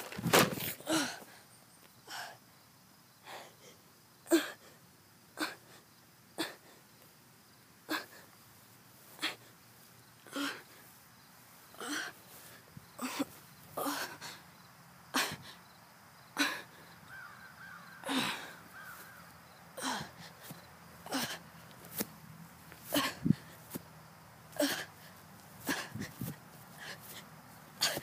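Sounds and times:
person gasping: 18.0s - 18.6s, 19.8s - 20.4s.

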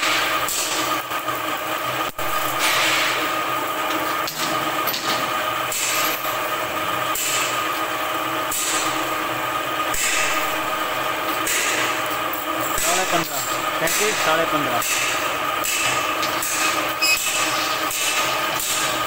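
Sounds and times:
machine humming: 0.0s - 19.0s.

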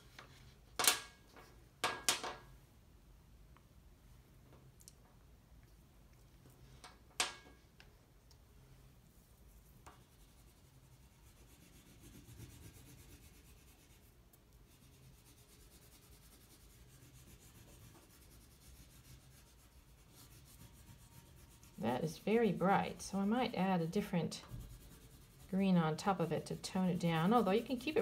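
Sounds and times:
oil pastel scratching on paper: 9.4s - 28.0s.

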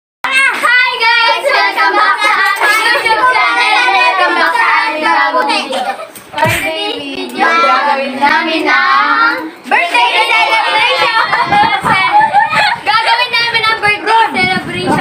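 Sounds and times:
girls singing together: 0.3s - 15.0s
thump on microphone: 6.4s - 6.8s.

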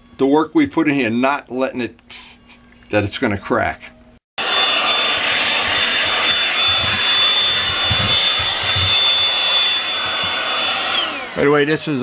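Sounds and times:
handheld vacuum running: 4.4s - 11.8s.

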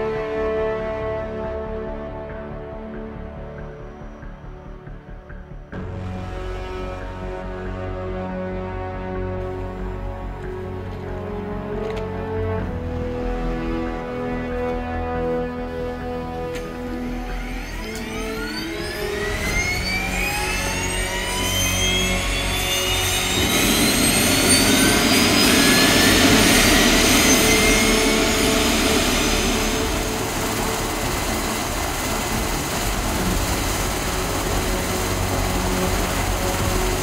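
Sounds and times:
helicopter turbine whine: 15.6s - 37.0s
rushing noise: 15.9s - 37.0s.

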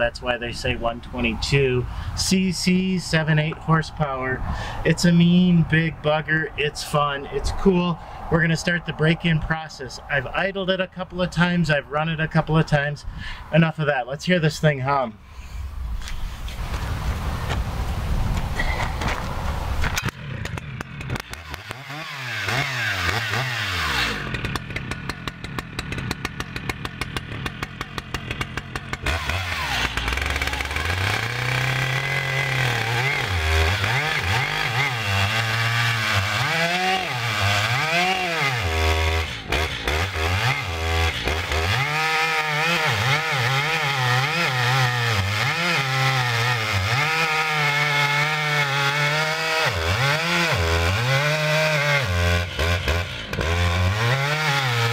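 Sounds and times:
chainsaw revving and idling: 19.8s - 54.9s.

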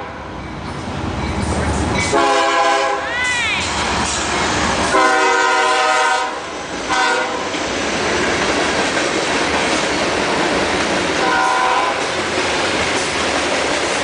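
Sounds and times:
freight cars rumbling over rails: 0.0s - 14.0s
train horn blowing: 2.1s - 3.1s, 4.9s - 7.5s, 11.2s - 12.1s.

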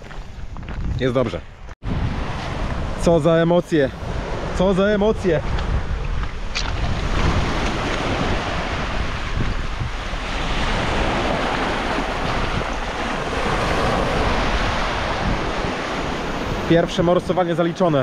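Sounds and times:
wind rumbling on microphone: 0.0s - 18.0s
waves washing over stones: 6.6s - 18.0s.

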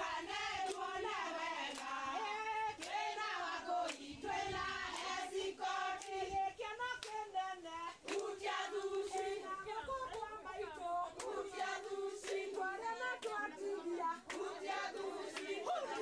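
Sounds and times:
women singing together: 0.0s - 16.0s
hand claps: 0.5s - 4.2s, 4.9s - 5.2s, 5.9s - 6.4s, 7.0s - 7.3s, 7.9s - 9.4s, 10.0s - 10.4s, 11.2s - 16.0s.

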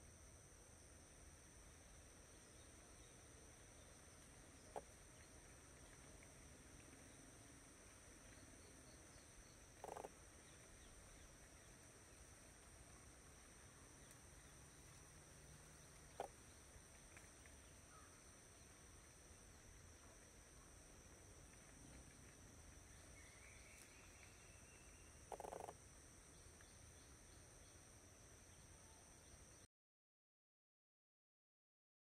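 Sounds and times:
distant animal calls: 9.8s - 10.2s
steady high-pitched tones: 25.3s - 25.7s.

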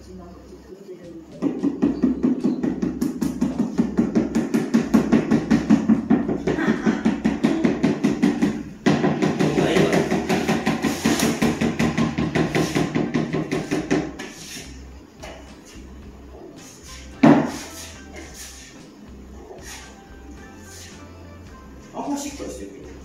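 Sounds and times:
rapid rhythmic knocking on floor: 1.2s - 14.5s.

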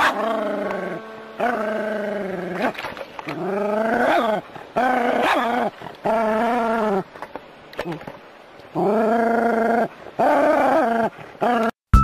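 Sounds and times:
dog crying: 3.6s - 7.1s.

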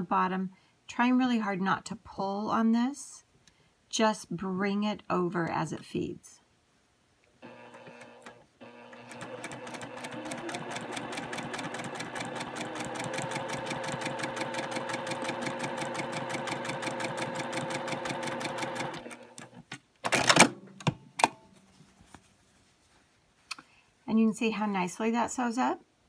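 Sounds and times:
sewing machine stitching: 7.4s - 20.4s.

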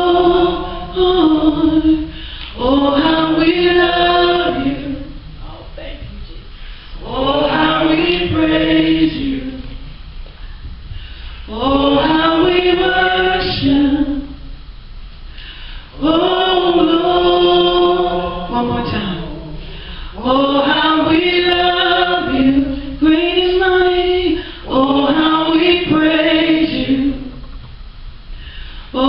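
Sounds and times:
woman singing into a microphone: 0.0s - 5.2s, 11.5s - 14.5s, 16.0s - 27.5s.

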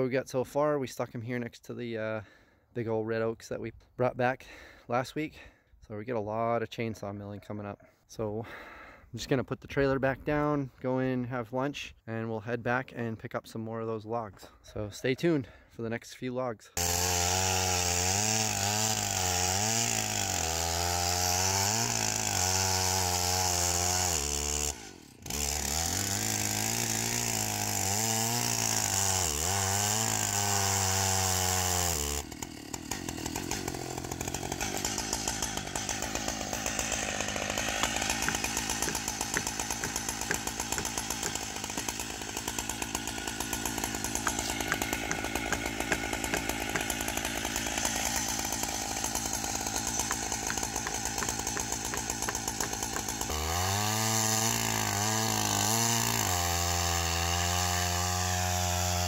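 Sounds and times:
chainsaw cutting log: 16.8s - 59.0s.

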